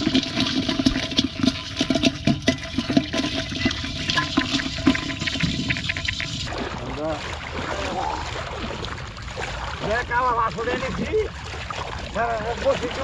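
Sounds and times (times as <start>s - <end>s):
fish flapping and splashing: 0.0s - 10.0s.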